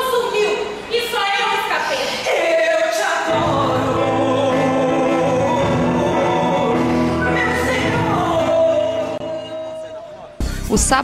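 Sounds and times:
choir singing held notes: 0:03.0 - 0:10.3.

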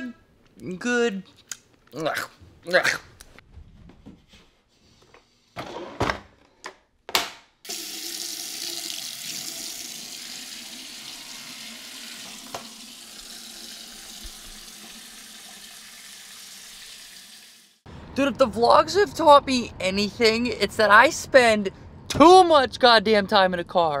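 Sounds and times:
tap running into sink basin: 0:11.3 - 0:16.0.

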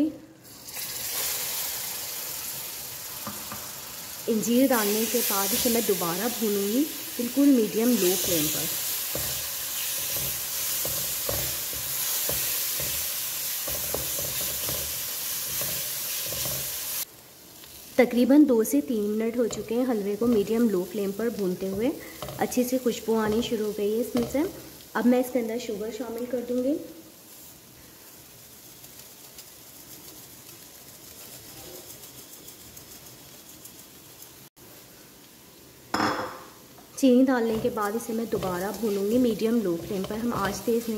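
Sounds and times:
food sizzling in a wok: 0:00.0 - 0:40.9
sugar pouring hiss: 0:00.4 - 0:18.9, 0:26.4 - 0:35.0
wooden spatula scraping a pan: 0:07.4 - 0:17.0, 0:37.4 - 0:40.9.

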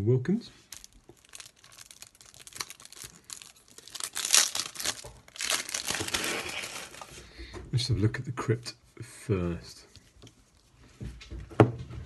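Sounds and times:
wrapping crinkling and tearing: 0:00.6 - 0:07.2.

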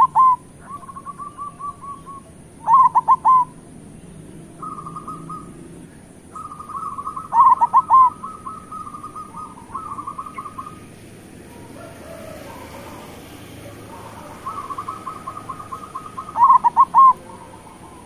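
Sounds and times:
doves cooing: 0:00.0 - 0:18.0.

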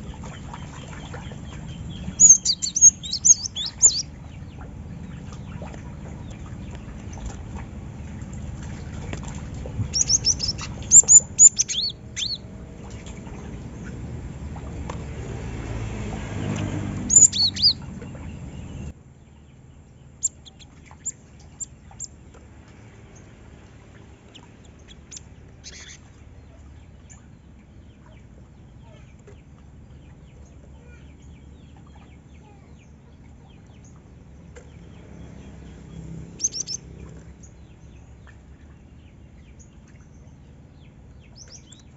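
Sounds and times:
bird chirping: 0:00.0 - 0:07.4, 0:09.8 - 0:14.0, 0:16.6 - 0:22.2, 0:24.3 - 0:27.4, 0:30.4 - 0:38.3
low rumble: 0:00.0 - 0:19.0.

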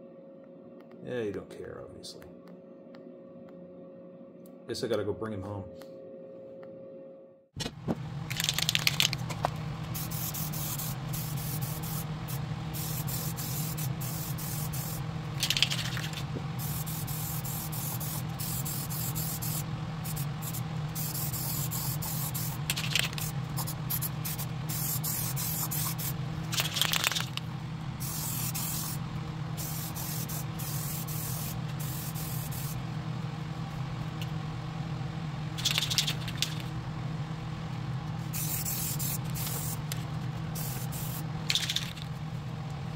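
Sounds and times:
low steady hum: 0:00.0 - 0:42.9
spray paint can hissing: 0:08.3 - 0:09.2, 0:09.9 - 0:27.4, 0:28.0 - 0:29.0, 0:29.6 - 0:32.8, 0:35.6 - 0:36.6, 0:38.3 - 0:40.0, 0:40.6 - 0:42.1.

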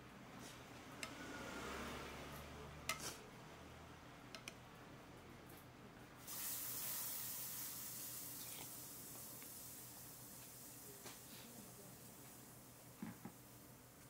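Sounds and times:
steady hiss: 0:06.2 - 0:14.0.

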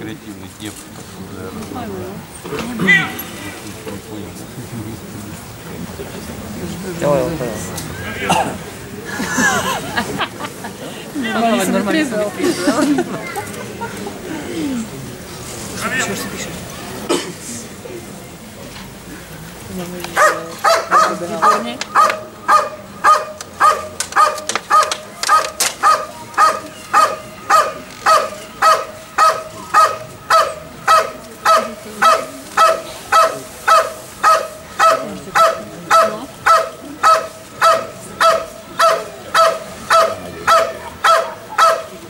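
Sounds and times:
dog barking: 0:20.2 - 0:41.9.

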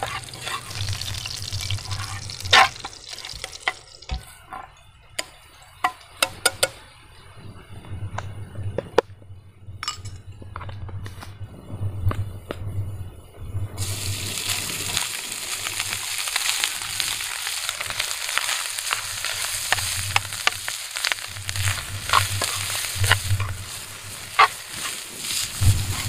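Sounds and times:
utensil scraping a pan: 0:00.0 - 0:04.7, 0:18.4 - 0:26.0
rice sizzling in a pan: 0:00.0 - 0:06.9, 0:13.8 - 0:26.0.

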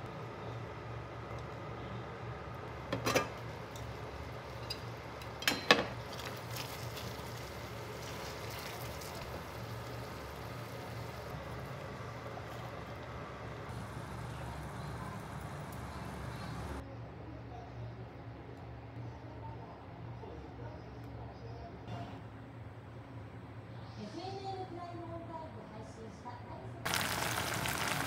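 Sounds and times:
sauce simmering in pan: 0:06.0 - 0:16.8, 0:26.9 - 0:28.0.

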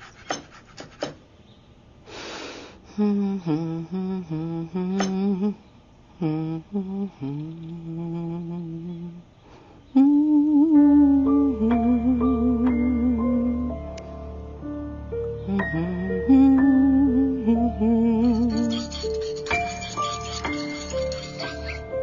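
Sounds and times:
knife chopping on wooden board: 0:00.0 - 0:01.2
woman humming: 0:02.8 - 0:05.6, 0:06.2 - 0:09.3, 0:09.9 - 0:13.8, 0:15.4 - 0:20.0.

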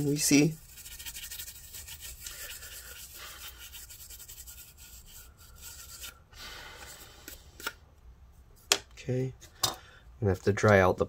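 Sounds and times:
cotton swab scrubbing circuit board: 0:00.0 - 0:06.3.

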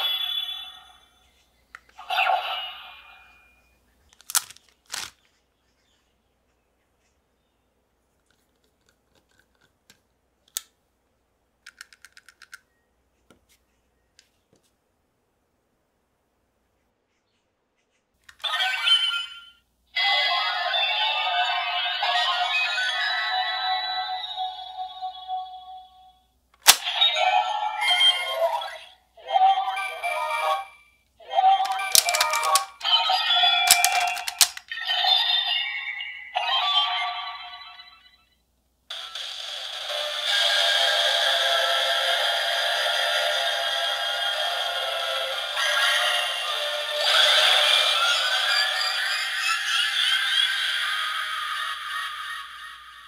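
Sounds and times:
plastic cube clicking and tapping: 0:04.2 - 0:05.1, 0:11.7 - 0:12.6, 0:31.6 - 0:32.9, 0:33.7 - 0:34.6
toy speaker voice and music: 0:18.4 - 0:25.6, 0:26.8 - 0:38.0, 0:39.1 - 0:53.0
electronic toy sound effect: 0:31.3 - 0:38.0, 0:44.6 - 0:53.0.

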